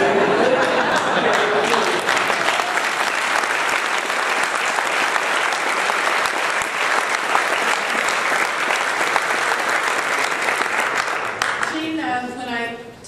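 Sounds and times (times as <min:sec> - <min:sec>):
audience applauding: 0:00.0 - 0:11.8.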